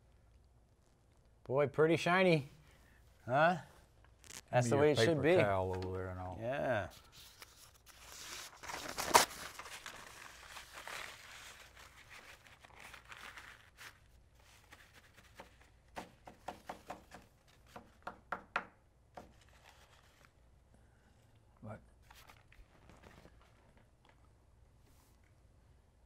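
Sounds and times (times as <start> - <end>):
paper towel rustling: 7.0 - 15.7, 22.0 - 23.8.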